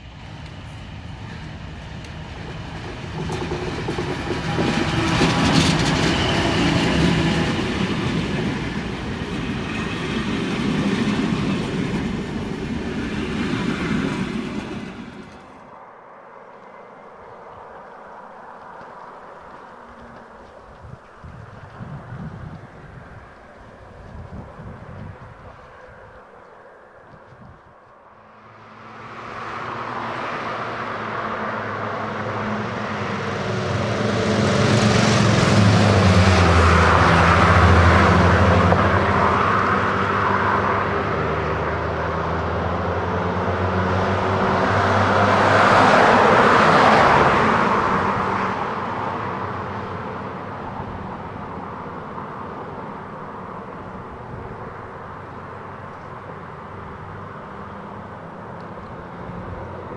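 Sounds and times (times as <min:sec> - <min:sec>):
diesel locomotive engine drone: 0:00.0 - 0:59.9.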